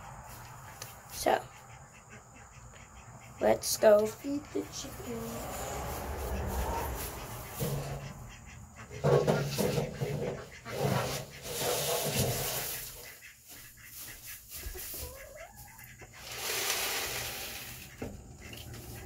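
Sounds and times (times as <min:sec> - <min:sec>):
rustling and scraping of feed: 0:05.2 - 0:19.0
chicken call: 0:14.8 - 0:16.2.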